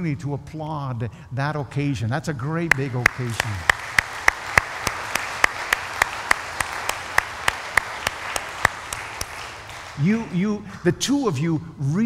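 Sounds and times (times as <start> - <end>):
sharp close hand claps: 2.7 - 10.4
crowd applauding: 2.7 - 10.6.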